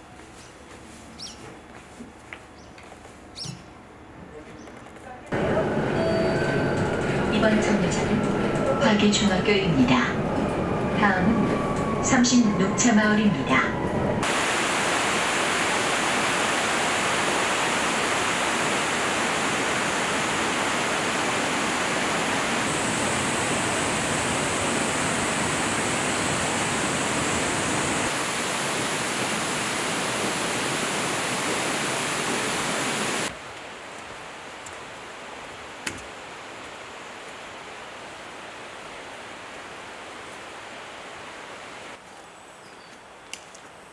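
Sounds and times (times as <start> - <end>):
stream water rushing: 14.2 - 42.0.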